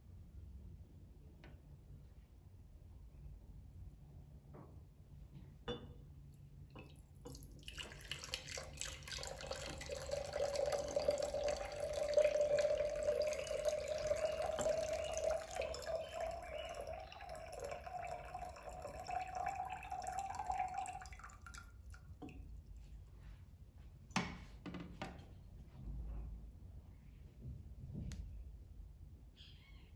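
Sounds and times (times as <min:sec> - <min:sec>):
water pouring into pitcher: 0:06.8 - 0:22.4.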